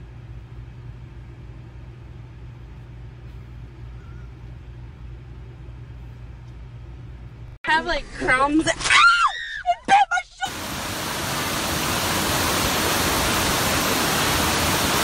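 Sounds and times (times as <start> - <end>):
steady low hum: 0.0 - 8.6.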